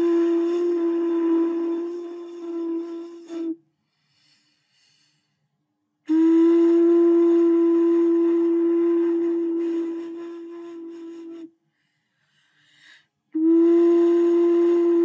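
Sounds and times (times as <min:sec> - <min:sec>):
breathy flute-like tone: 0:00.0 - 0:03.6, 0:06.1 - 0:11.6, 0:12.4 - 0:15.0.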